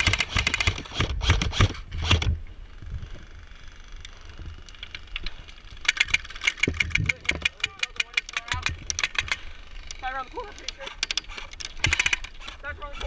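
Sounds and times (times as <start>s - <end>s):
airsoft rifles firing: 0.0s - 2.3s, 11.2s - 13.0s.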